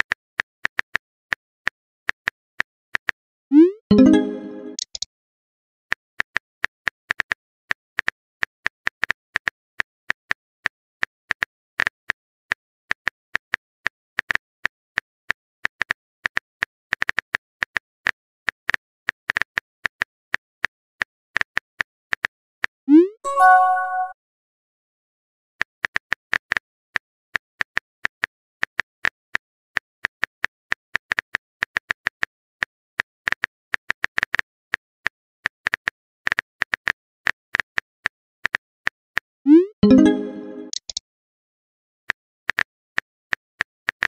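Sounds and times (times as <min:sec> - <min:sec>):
bright chime: 0:03.9 - 0:04.8, 0:23.3 - 0:24.1, 0:39.8 - 0:40.8.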